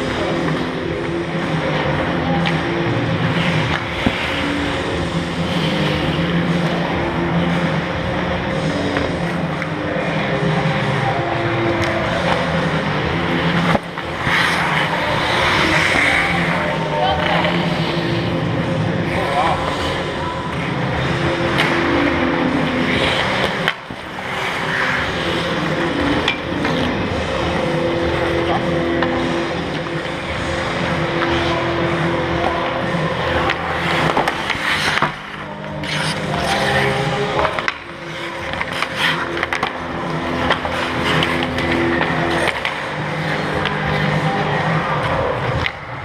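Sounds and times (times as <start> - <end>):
hockey sticks clacking: 0.0 - 46.0
skates scraping ice: 0.0 - 46.0
stick hitting puck: 3.6 - 4.4, 13.5 - 17.6, 23.2 - 27.0, 33.3 - 44.3.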